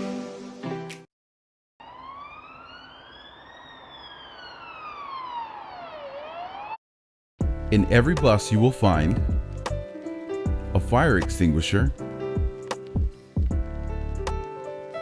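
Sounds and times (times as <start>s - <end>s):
emergency vehicle siren wailing: 1.8s - 6.8s
soft music: 7.4s - 15.0s.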